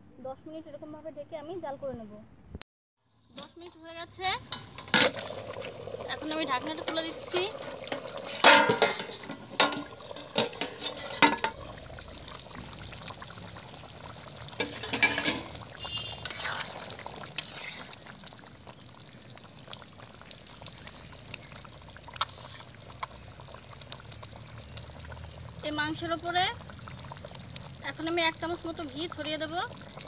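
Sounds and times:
curry simmering and bubbling: 0:03.1 - 0:30.0
spatula scraping a pan: 0:03.4 - 0:05.7, 0:06.6 - 0:11.6, 0:14.6 - 0:18.0
metal clanks: 0:08.3 - 0:11.6, 0:14.6 - 0:15.5.

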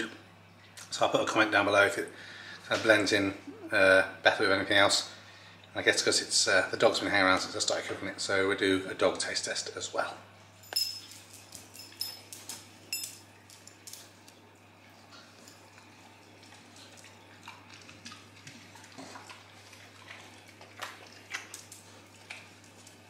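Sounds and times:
low steady hum: 0:00.0 - 0:23.0
dog sniffing and eating: 0:10.6 - 0:23.0
dog claws clicking on tiles: 0:10.7 - 0:14.4, 0:20.0 - 0:23.0.

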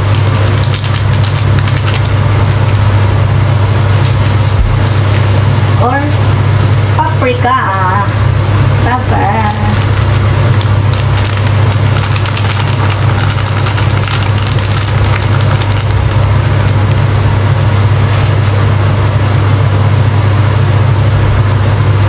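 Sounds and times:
plastic bag crackling: 0:00.0 - 0:05.7, 0:09.3 - 0:16.9, 0:17.9 - 0:18.7
low motor hum: 0:00.0 - 0:22.0.

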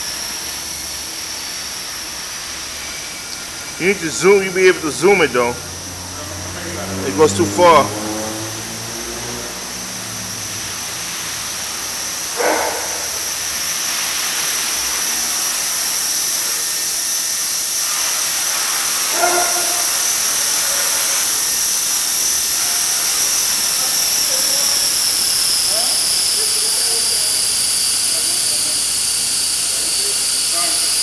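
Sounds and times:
rc helicopter motor whine: 0:00.0 - 0:08.3, 0:09.0 - 0:31.0
rotor blades hissing: 0:00.1 - 0:31.0.

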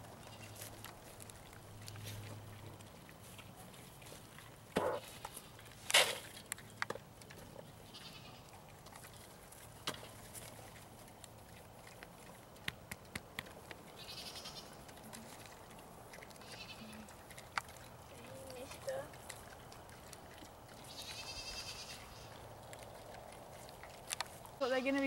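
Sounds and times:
short high animal calls: 0:20.9 - 0:22.2.

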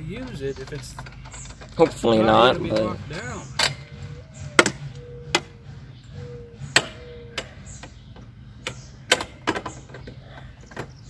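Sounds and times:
plastic handle parts clicking: 0:06.8 - 0:11.0.

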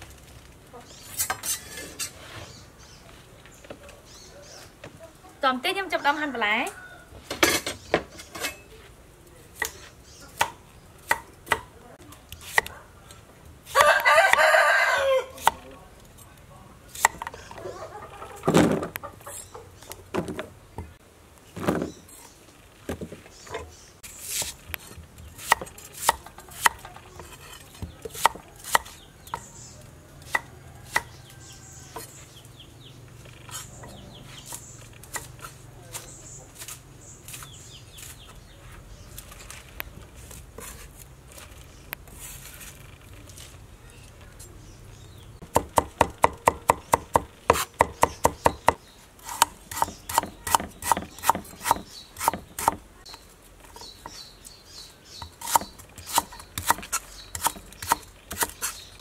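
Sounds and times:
cleaver chopping on wooden board: 0:45.5 - 0:52.8, 0:55.2 - 0:58.8.

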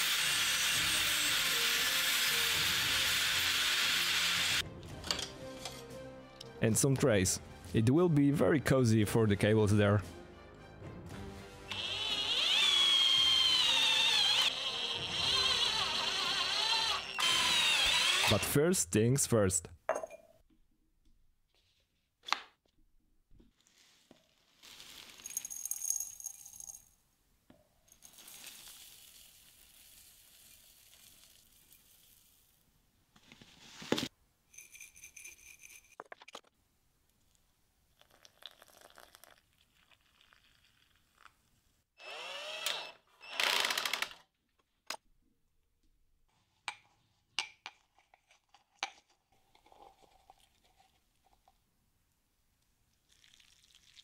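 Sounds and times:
power tool whining: 0:00.0 - 0:04.6, 0:11.7 - 0:18.4, 0:42.0 - 0:44.2.

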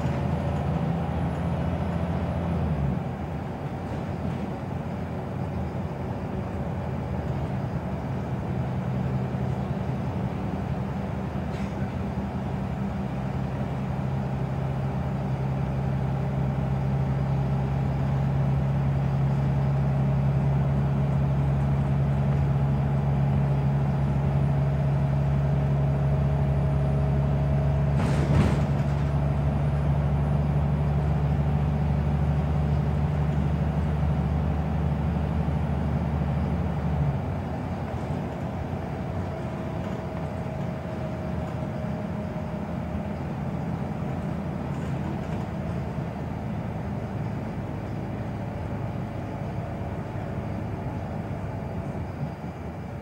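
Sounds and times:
bus engine drone: 0:00.0 - 0:53.0
road noise: 0:00.0 - 0:53.0.

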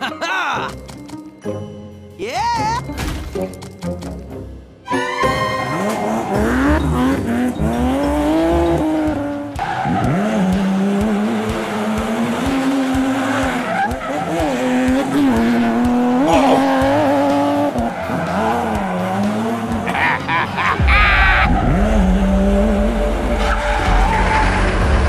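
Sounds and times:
tires squealing: 0:05.0 - 0:25.0
race car engine revving: 0:05.6 - 0:25.0.

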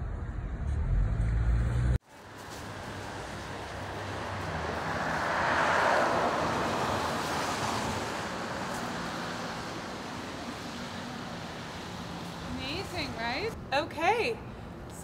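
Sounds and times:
car passing with tyre hiss: 0:01.7 - 0:13.4.

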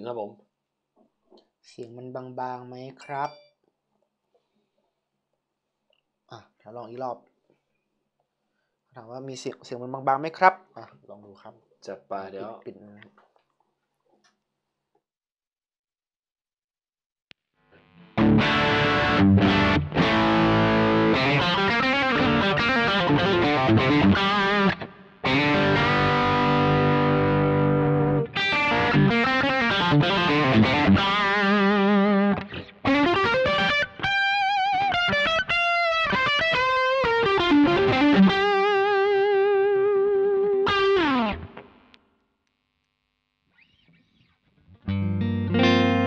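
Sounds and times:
overdriven electric guitar: 0:17.6 - 0:42.1, 0:43.6 - 0:46.0.

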